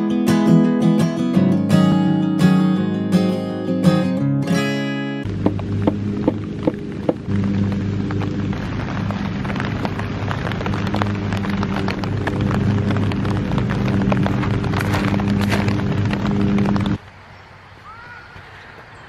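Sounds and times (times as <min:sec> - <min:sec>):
rain on a plastic tarp: 0:05.2 - 0:19.0
steady low hum: 0:05.3 - 0:17.0.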